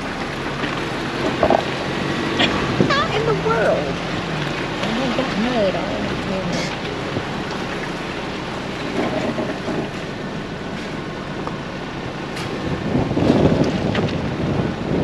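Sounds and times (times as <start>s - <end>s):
vehicle engine and tyres: 0.0s - 15.0s
wind noise on microphone: 1.0s - 3.6s, 12.3s - 15.0s.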